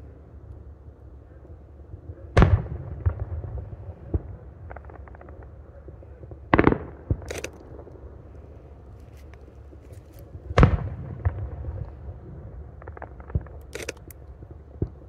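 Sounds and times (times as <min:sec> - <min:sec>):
firework shells booming: 0:06.5 - 0:07.9, 0:10.2 - 0:15.0
sharp crack: 0:06.6 - 0:08.0, 0:12.7 - 0:15.0
firework pops and crackling: 0:12.7 - 0:15.0.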